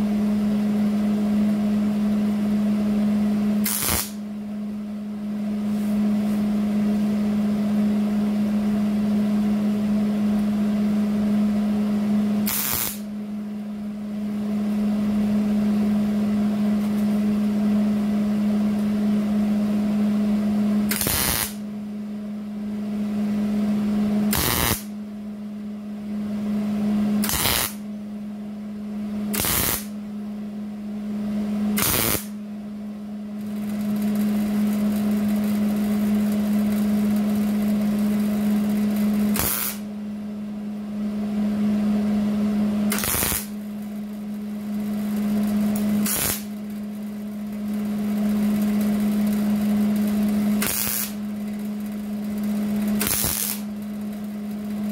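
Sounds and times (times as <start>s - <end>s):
steady low hum: 0.0s - 54.9s
welder crackling bursts: 3.6s - 4.2s, 12.5s - 13.0s, 20.9s - 21.6s, 24.3s - 24.9s, 27.2s - 27.8s, 29.4s - 29.9s, 31.8s - 32.3s, 39.3s - 39.8s, 42.9s - 43.6s, 46.0s - 46.6s, 50.0s - 51.2s, 52.8s - 53.7s.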